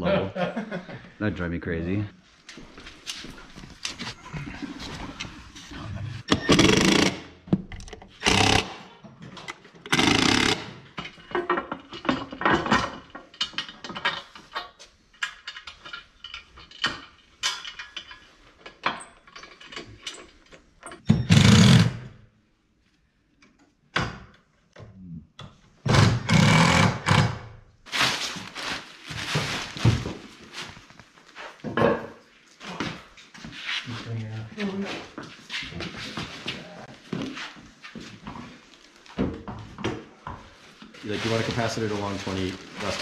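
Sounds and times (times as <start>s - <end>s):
power tool driving fasteners: 6.3s - 7.3s, 8.2s - 8.9s, 9.9s - 10.8s, 21.2s - 22.1s, 25.9s - 27.4s
metal parts clicking and knocking: 9.3s - 21.3s.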